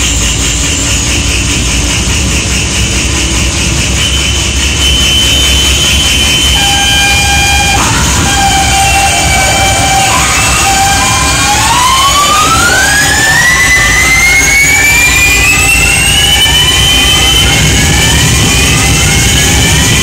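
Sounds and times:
steady electronic tone: 2.0s - 20.0s
oscillator tone sweeping upward: 4.2s - 20.0s.

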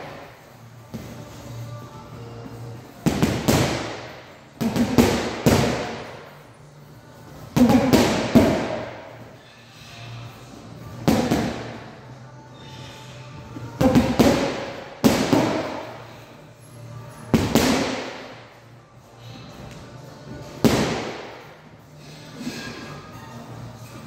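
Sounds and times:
gloved punches on heavy bag: 11.1s - 11.7s, 13.8s - 15.8s.

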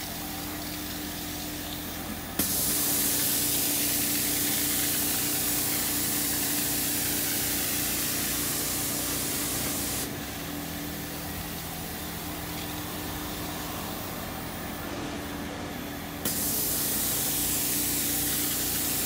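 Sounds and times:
spray and suction hiss: 0.6s - 10.2s, 16.2s - 19.0s.

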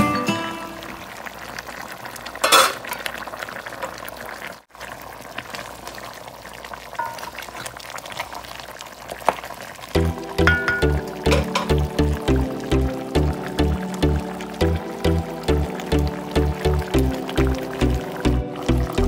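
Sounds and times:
music: 0.0s - 0.9s, 10.0s - 19.0s
meat sizzling in a pot: 0.3s - 19.0s.

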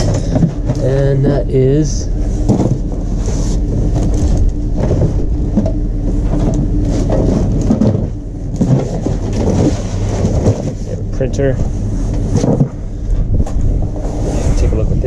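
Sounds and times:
steady low hum: 0.0s - 15.0s
cardboard box rustling and scraping: 2.2s - 5.7s, 6.3s - 11.0s.

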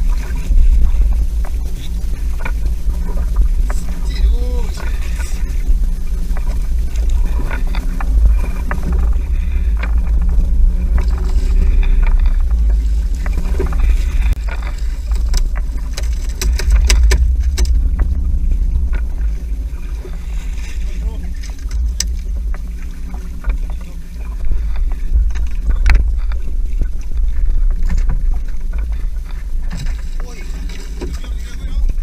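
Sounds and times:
boat engine low rumble: 0.0s - 32.0s
fish knocking and slapping on deck: 13.2s - 18.2s.

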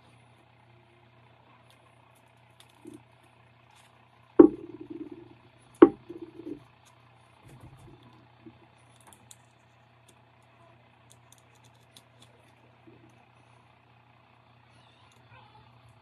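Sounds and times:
faint low hum: 0.0s - 16.0s
small clicks and rustles: 1.5s - 4.2s, 4.8s - 13.6s.

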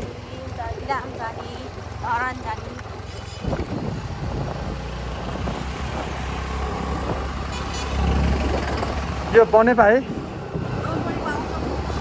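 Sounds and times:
scooter engine and road rumble: 0.0s - 12.0s
wind on microphone: 3.2s - 9.3s, 10.0s - 12.0s.

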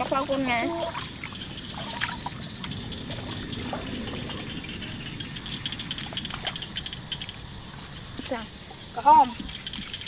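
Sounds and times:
small splashes: 0.0s - 4.5s, 5.8s - 8.4s
muddy water sloshing: 0.0s - 10.0s.

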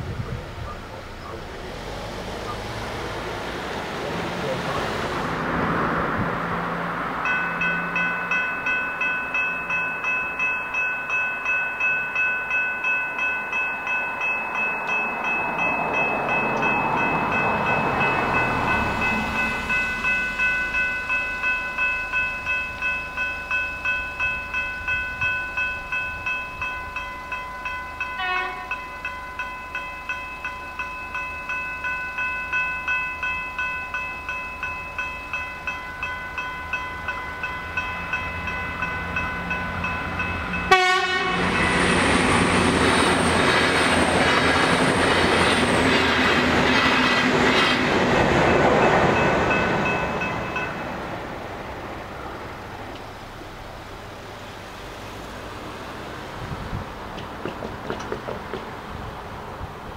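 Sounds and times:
train rushing over crossing: 0.0s - 59.9s
level crossing bells ringing: 6.8s - 44.4s, 47.4s - 51.5s
train horn blast: 28.2s - 28.8s, 40.7s - 41.7s.

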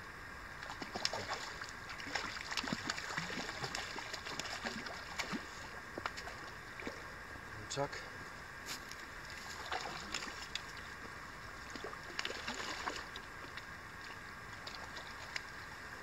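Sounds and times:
steady background hiss: 0.0s - 16.0s
fish splashing in water: 0.6s - 7.1s, 9.4s - 10.9s, 11.5s - 15.7s.

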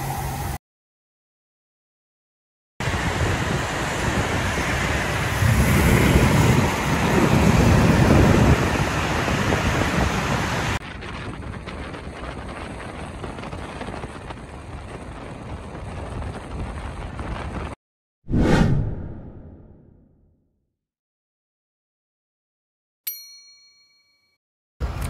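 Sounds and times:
road traffic passing: 2.8s - 10.8s.

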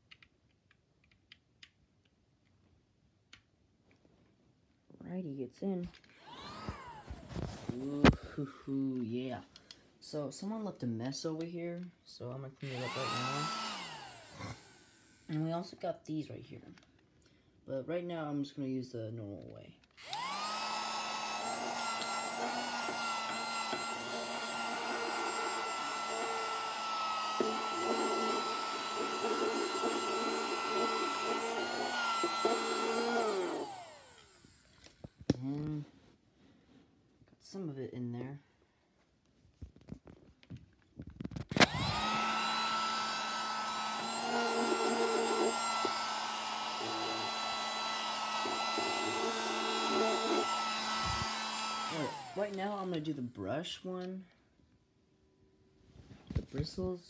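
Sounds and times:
small vacuum motor whining: 6.1s - 8.5s, 12.6s - 15.6s, 20.0s - 35.8s, 41.4s - 53.0s.

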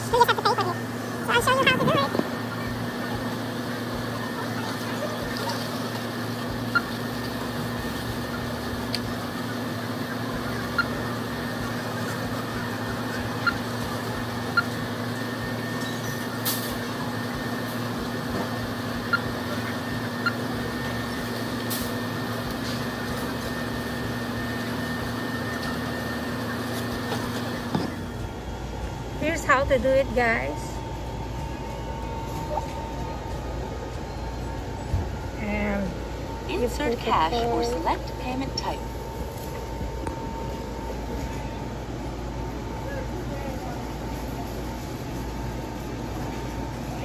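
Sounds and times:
machinery hum: 0.0s - 47.0s
thin high tone: 28.0s - 39.0s.

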